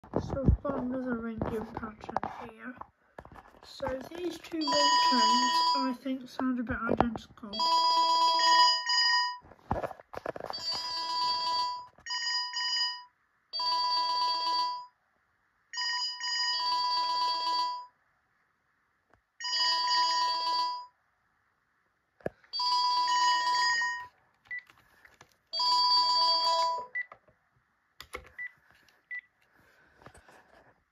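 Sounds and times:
phone alarm beeping tones: 4.4s - 6.0s, 7.6s - 9.4s, 10.5s - 14.9s, 25.6s - 27.1s.

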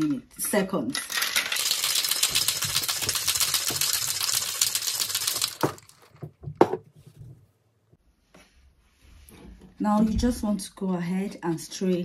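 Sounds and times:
ice rattling in cocktail shaker: 1.0s - 6.2s.

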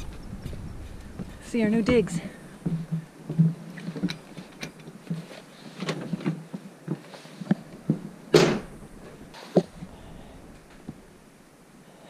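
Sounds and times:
footsteps on wooden boards: 0.0s - 9.8s.

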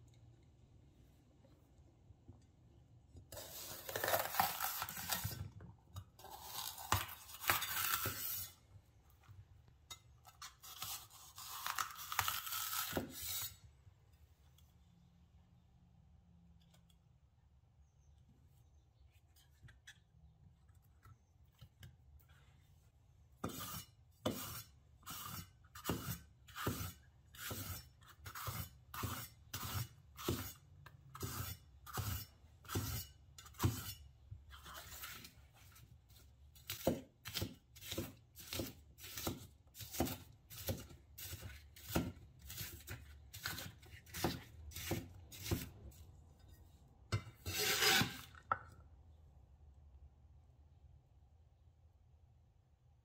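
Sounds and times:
blade scraping across board: 47.4s - 48.4s.

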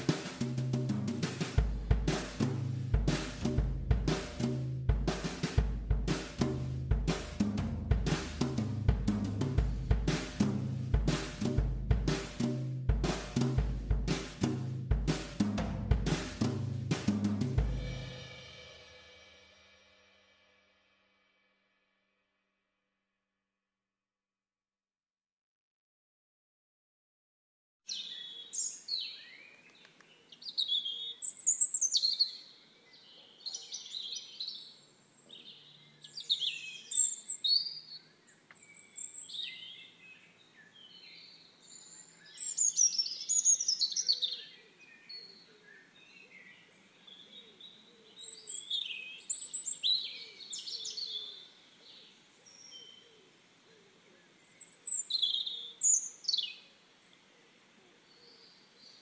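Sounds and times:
birds chirping: 27.9s - 59.0s
faint background hiss: 44.6s - 59.0s.

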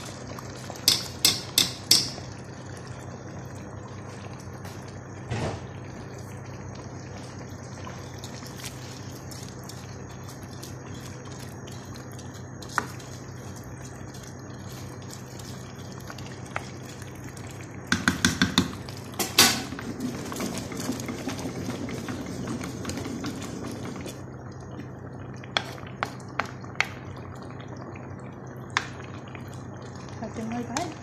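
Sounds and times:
stirring and bubbling: 0.0s - 31.0s
spoon clicks against pot: 0.8s - 2.2s
spoon tapping and knocking pot: 0.8s - 2.3s, 17.9s - 19.5s.

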